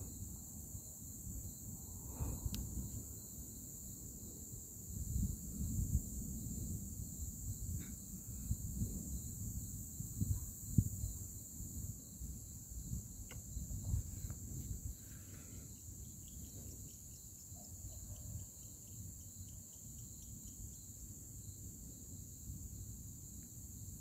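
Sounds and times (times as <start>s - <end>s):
crickets chirring: 0.0s - 24.0s
quick insect ticks: 13.2s - 14.4s, 15.3s - 21.0s.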